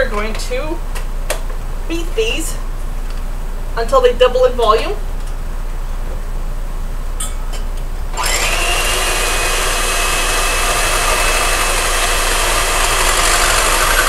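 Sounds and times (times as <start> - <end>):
electric hand mixer whirring: 8.2 - 14.0.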